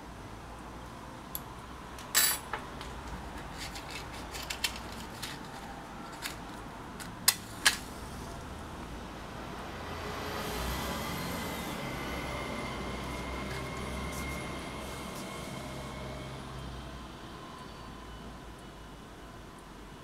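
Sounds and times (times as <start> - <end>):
small objects clattering: 2.1 - 7.9.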